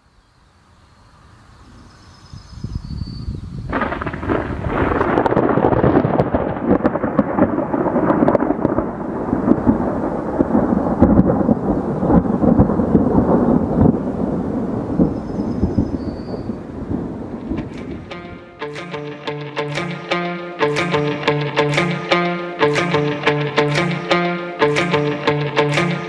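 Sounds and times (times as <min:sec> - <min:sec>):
rolling thunder: 0:03.7 - 0:18.5.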